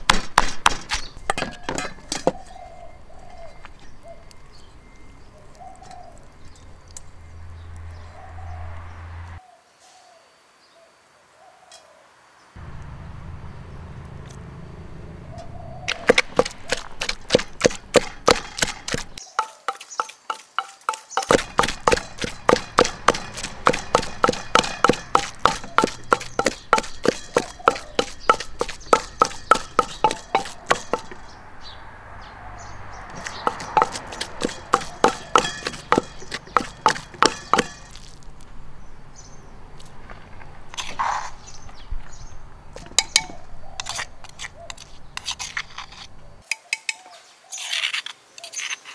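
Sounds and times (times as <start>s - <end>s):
knife chopping on wooden board: 0.0s - 2.4s, 15.9s - 31.2s, 33.1s - 38.0s.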